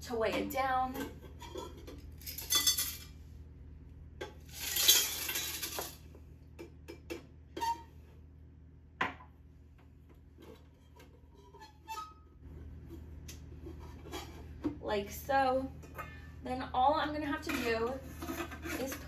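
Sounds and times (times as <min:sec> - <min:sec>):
ice cubes rattling into metal cylinder: 0:04.5 - 0:06.0.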